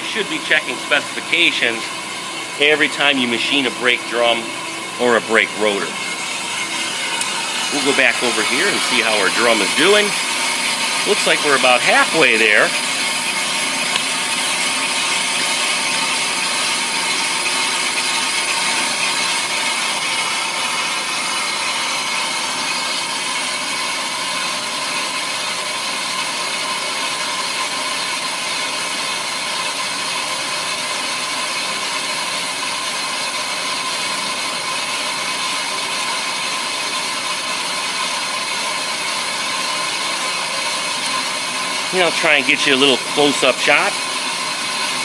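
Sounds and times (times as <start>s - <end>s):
lathe motor: 0.0s - 45.0s
held whining tones: 3.6s - 16.0s.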